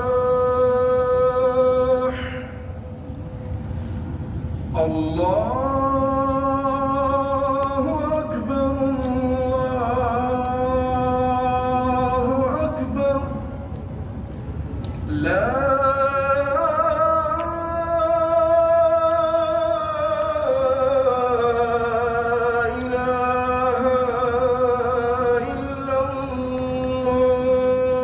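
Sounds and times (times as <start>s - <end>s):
man chanting a prayer: 0.0s - 2.8s, 4.7s - 13.7s, 15.1s - 28.0s.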